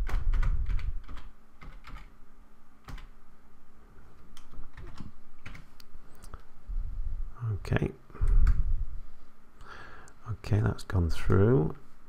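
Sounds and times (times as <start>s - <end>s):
keyboard keys tapping: 0.0s - 2.1s, 2.8s - 3.1s, 4.4s - 5.7s.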